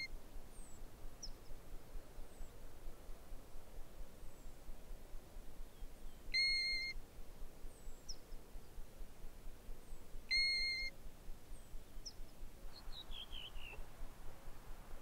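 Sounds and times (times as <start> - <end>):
small bird chirps: 5.7 - 7.0, 9.9 - 10.9, 11.5 - 13.8
plover whistling call: 6.3 - 7.0, 10.3 - 10.9.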